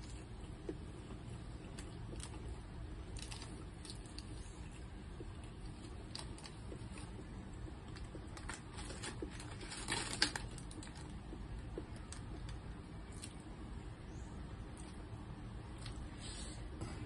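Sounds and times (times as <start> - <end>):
plastic and paper bags crinkling: 7.9 - 11.2.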